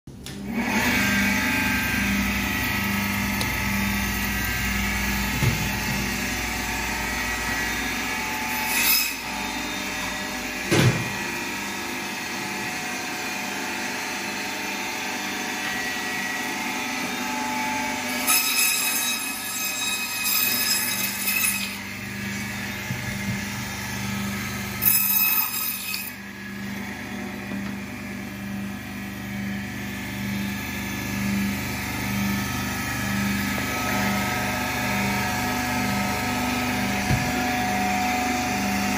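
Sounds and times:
electric band saw running: 0.3 - 38.9
saw blade cutting meat: 8.1 - 9.7, 18.0 - 22.7, 24.4 - 26.3.

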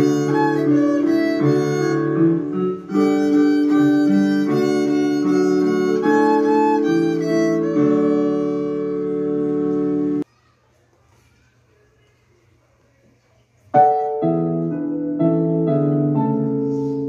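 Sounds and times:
recorded accompaniment: 0.0 - 10.2, 13.8 - 17.0
violin playing: 0.0 - 10.2.

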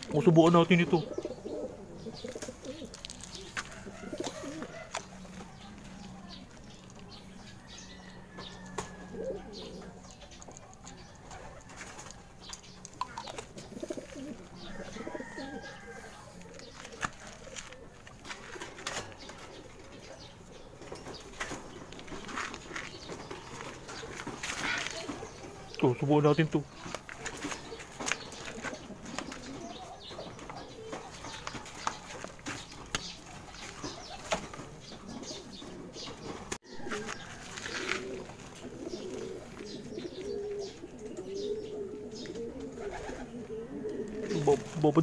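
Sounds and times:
pigeons cooing: 0.0 - 45.0
clicks and rustles: 2.2 - 7.2, 16.4 - 19.6.

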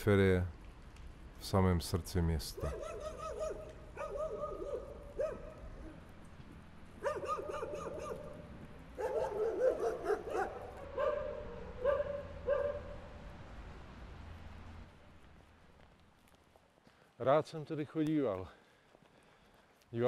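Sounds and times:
dog barking: 2.6 - 5.6, 7.0 - 8.4, 9.0 - 13.0.

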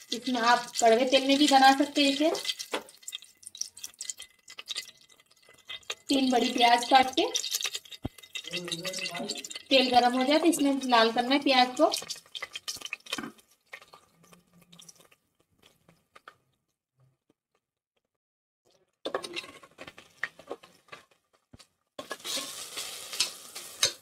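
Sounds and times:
onions sizzling in oil: 0.0 - 14.0, 22.0 - 24.0
metal spoon scraping pot: 0.6 - 11.3, 19.1 - 19.9, 22.0 - 24.0.

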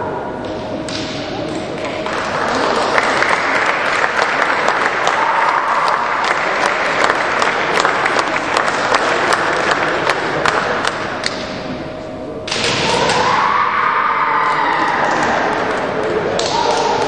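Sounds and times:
spectators applauding: 1.8 - 11.2
loud drawn-out shout: 5.0 - 6.2, 12.8 - 15.8, 16.4 - 17.0.

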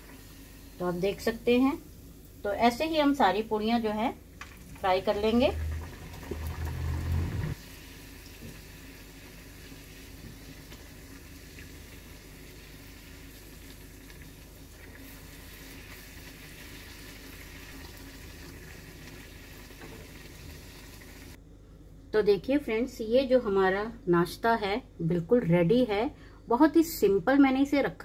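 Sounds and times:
hot oil sizzling and bubbling: 0.0 - 3.4, 4.3 - 21.4.

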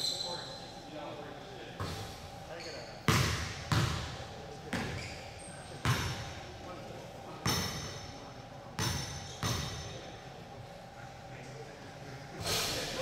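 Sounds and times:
basketball bouncing on gym floor: 3.1 - 5.1, 5.8 - 6.3, 7.4 - 8.0, 8.8 - 10.0.

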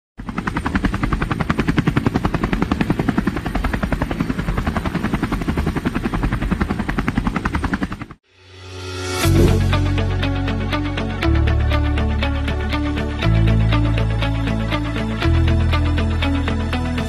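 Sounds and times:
helicopter rotor chop: 0.2 - 8.2.

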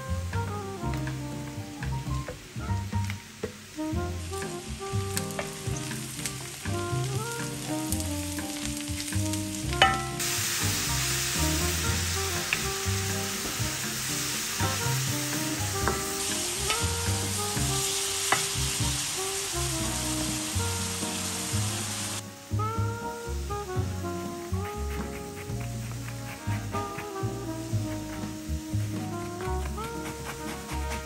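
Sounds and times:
food sizzling in a pan: 0.9 - 31.0
stirring clicks: 4.4 - 10.2.

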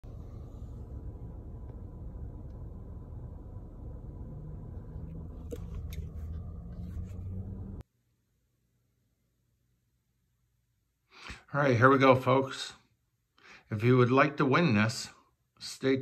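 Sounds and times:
car cabin rumble: 0.0 - 7.8
phone handling clicks and rustles: 5.4 - 6.5.

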